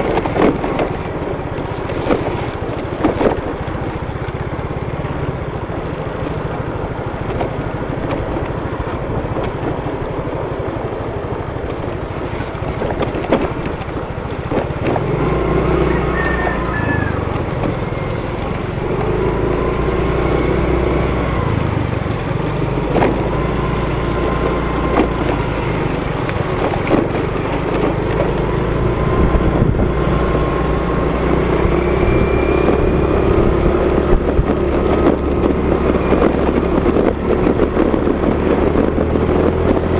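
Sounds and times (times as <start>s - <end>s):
small motorcycle engine running: 0.0s - 39.9s
wind noise on microphone: 0.0s - 39.9s.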